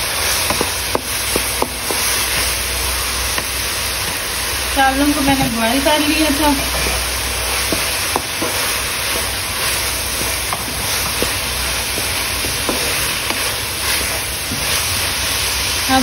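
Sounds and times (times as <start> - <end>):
vegetables sizzling in a wok: 0.0 - 16.0
spatula knocking and scraping pan: 7.6 - 14.8.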